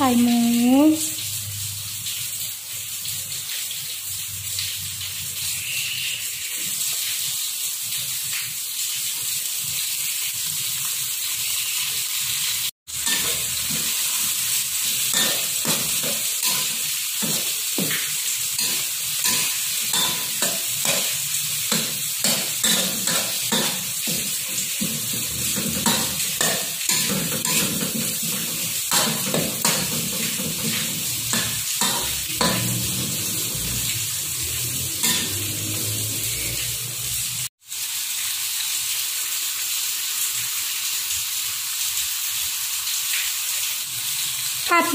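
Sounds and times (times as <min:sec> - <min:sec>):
pork sizzling in hot oil: 0:00.0 - 0:44.9
metal spatula scraping wok: 0:35.0 - 0:36.4.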